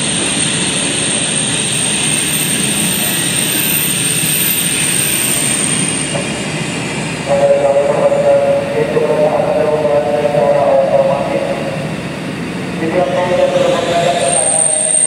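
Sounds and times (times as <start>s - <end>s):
electric train rolling past: 0.0s - 15.0s
thin high whine: 12.8s - 15.0s.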